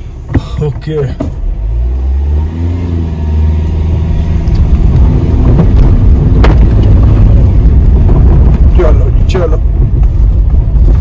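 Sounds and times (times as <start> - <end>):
car engine revving hard: 1.3 - 8.6.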